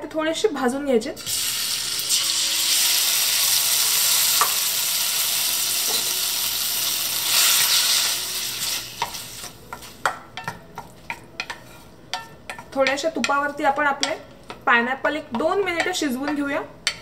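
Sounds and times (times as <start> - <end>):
fruit sizzling in hot fat: 1.2 - 10.0
wooden spatula tapping and scraping pan: 9.0 - 17.0.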